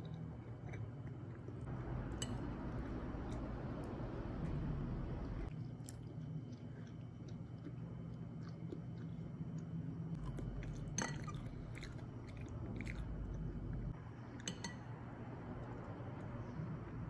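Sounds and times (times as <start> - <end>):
faint low hum: 0.0 - 17.0
person chewing food: 5.5 - 14.0.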